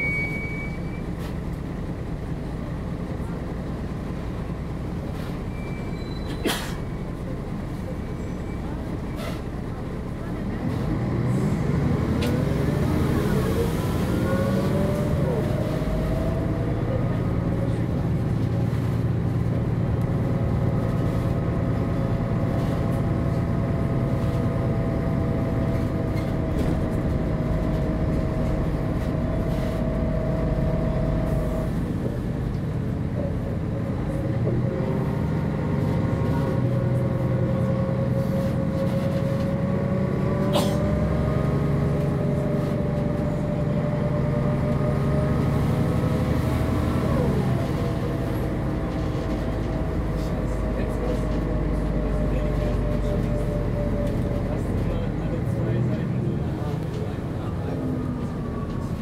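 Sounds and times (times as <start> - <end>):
bus diesel engine running: 0.0 - 59.0.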